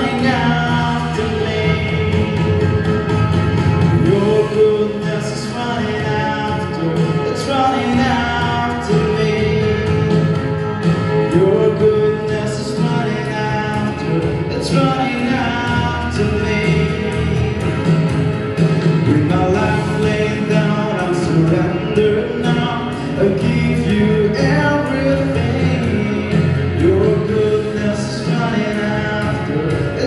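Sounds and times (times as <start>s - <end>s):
man singing into a microphone: 0.0s - 2.8s, 3.8s - 10.4s, 11.0s - 17.8s, 18.8s - 30.0s
instrumental accompaniment: 0.0s - 30.0s.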